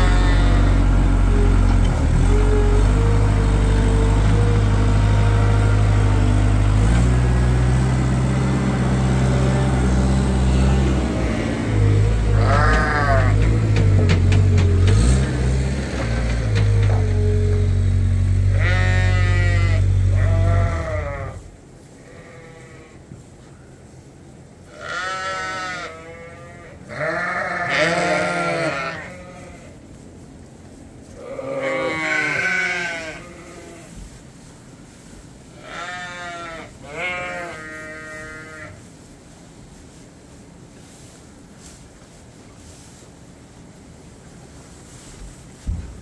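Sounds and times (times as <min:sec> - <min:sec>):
sheep bleating: 0:00.0 - 0:05.9, 0:12.1 - 0:13.6, 0:18.4 - 0:21.4, 0:22.0 - 0:23.0, 0:24.7 - 0:29.8, 0:31.2 - 0:33.9, 0:35.6 - 0:38.8
loud low engine drone: 0:00.0 - 0:21.5.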